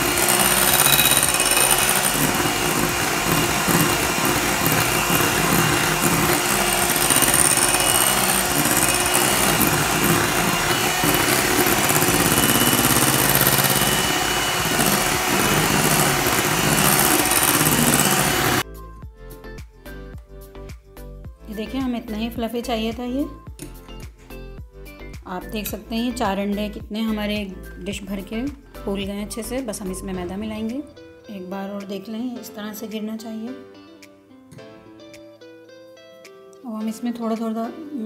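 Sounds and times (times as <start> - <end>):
electric mixer whisking: 0.0 - 18.6.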